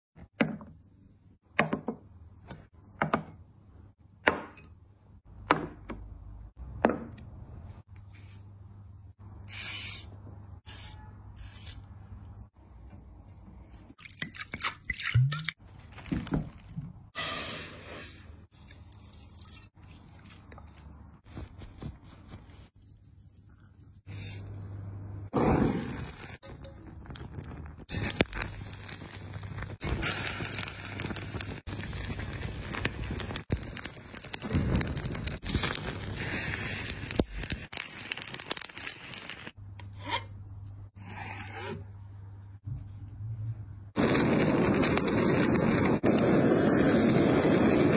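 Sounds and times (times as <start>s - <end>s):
flames crackling and hissing: 17.1s - 18.4s, 25.3s - 39.6s, 43.9s - 47.9s
wet squishing and scraping: 18.4s - 22.8s.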